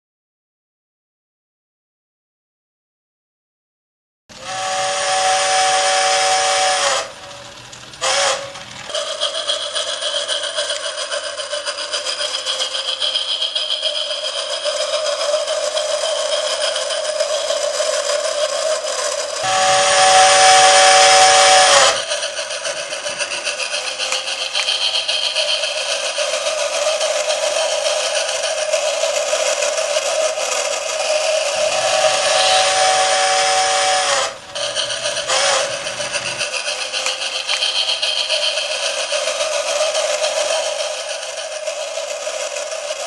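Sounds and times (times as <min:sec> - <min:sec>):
rhythmic steam train running sound: 0:04.3 - 0:43.0
electronic steam whistle: 0:04.4 - 0:11.0, 0:19.3 - 0:28.0, 0:28.8 - 0:41.5.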